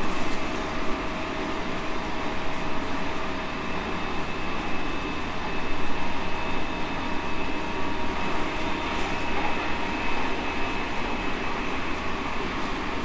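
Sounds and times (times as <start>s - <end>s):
faint train whine: 0.0s - 13.0s.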